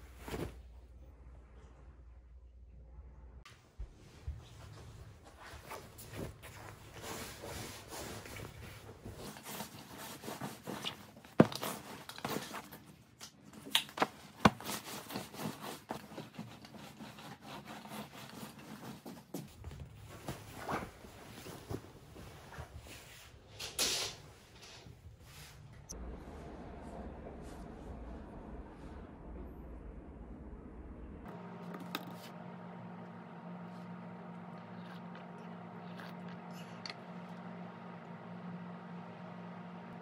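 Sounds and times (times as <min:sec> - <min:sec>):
rustling and rubbing: 0:00.0 - 0:00.8, 0:04.0 - 0:13.0, 0:14.0 - 0:23.5.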